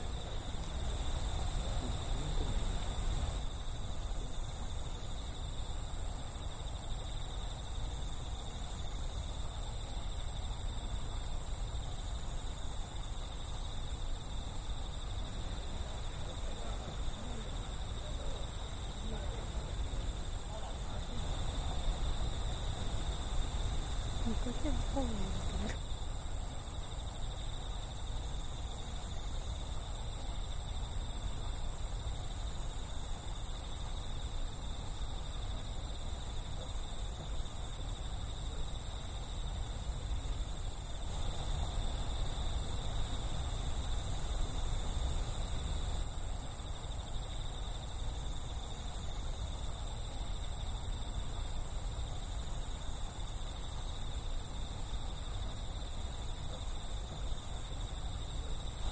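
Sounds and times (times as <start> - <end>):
insects chirping chorus: 0.0 - 58.9.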